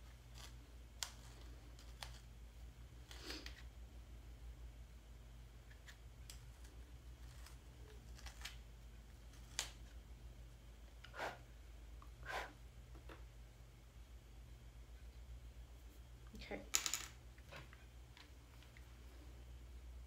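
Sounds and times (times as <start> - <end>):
steady low hum: 0.0 - 20.0
short scrapes: 11.0 - 11.4, 12.2 - 12.6.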